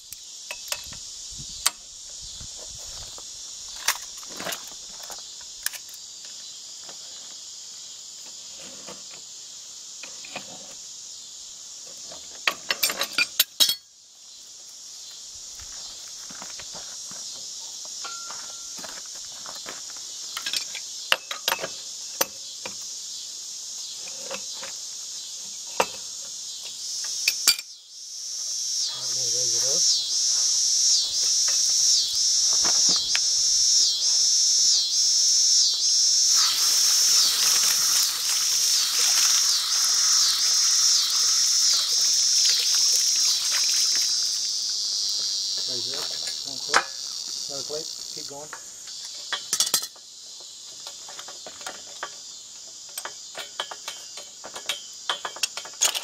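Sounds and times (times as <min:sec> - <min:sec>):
insects chirping: 0:00.0 - 0:56.0
metal clinks and knocks: 0:12.4 - 0:13.9, 0:18.0 - 0:19.0, 0:20.4 - 0:22.4, 0:49.1 - 0:50.1, 0:50.8 - 0:56.0.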